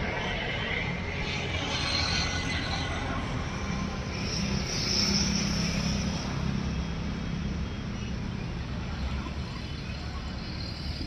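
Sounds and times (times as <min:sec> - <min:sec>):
distant engine droning: 0:00.0 - 0:11.0.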